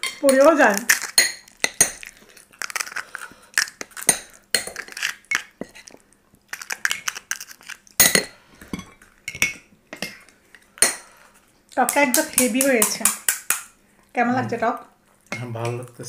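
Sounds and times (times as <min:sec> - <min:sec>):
spoons clinking on ceramic bowls: 0:00.0 - 0:02.8, 0:04.0 - 0:05.9, 0:08.0 - 0:10.2.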